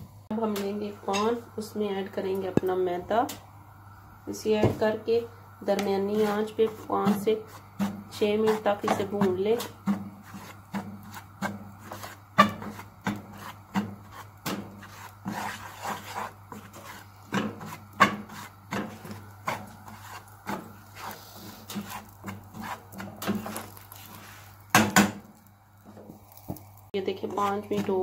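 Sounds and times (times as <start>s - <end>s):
spoon scraping flour in pan: 5.7s - 25.1s, 27.2s - 28.0s.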